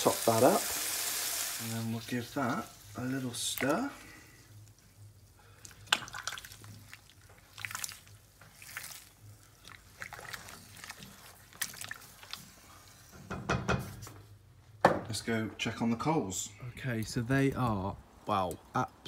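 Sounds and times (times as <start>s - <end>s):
low steady hum: 1.6s - 13.3s
stew sloshing in a pot: 3.4s - 13.1s.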